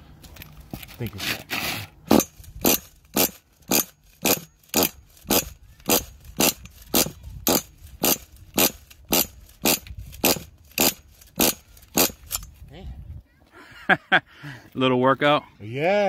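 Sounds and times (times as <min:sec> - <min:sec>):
pull-start cord zipping: 0:01.2 - 0:12.5
small engine turning over: 0:01.6 - 0:12.5.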